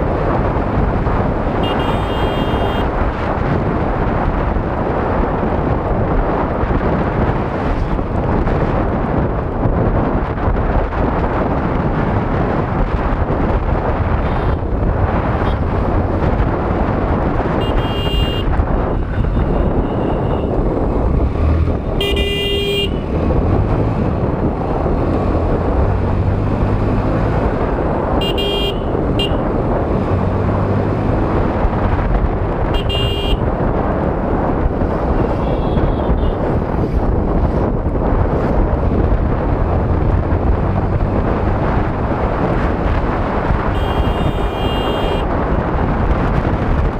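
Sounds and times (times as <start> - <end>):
motorcycle road noise: 0.0 - 46.9
wind rushing over microphone: 0.0 - 46.9
vehicle horn tooting: 1.6 - 2.9, 17.6 - 18.5, 22.0 - 23.0, 28.2 - 29.4, 32.8 - 33.4, 35.4 - 36.4, 43.8 - 45.2.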